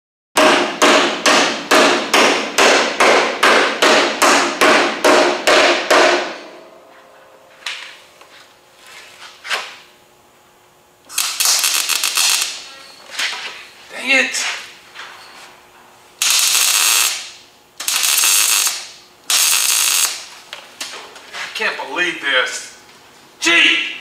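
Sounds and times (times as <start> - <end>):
welder short arc bursts: 11.1 - 12.7, 16.2 - 20.2
continuous crackling weld: 11.1 - 12.8, 16.2 - 20.3.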